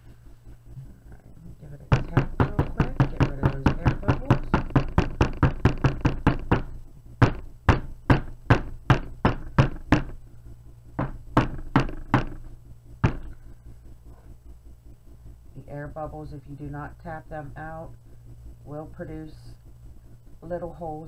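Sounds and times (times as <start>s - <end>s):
wooden mold knocking on tabletop: 1.9s - 10.1s, 11.0s - 12.4s.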